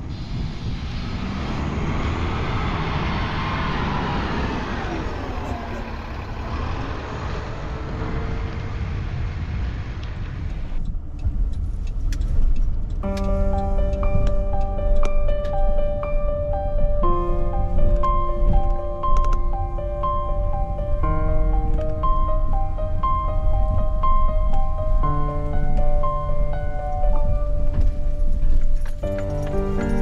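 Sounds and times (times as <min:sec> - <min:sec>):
bus engine whining: 0:00.0 - 0:30.0
music: 0:13.0 - 0:30.0
clicks: 0:17.9 - 0:19.4.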